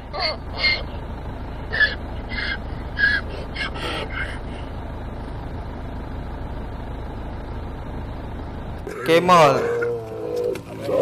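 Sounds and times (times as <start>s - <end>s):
donkey braying: 0.0s - 1.0s, 1.6s - 4.7s, 8.8s - 11.0s.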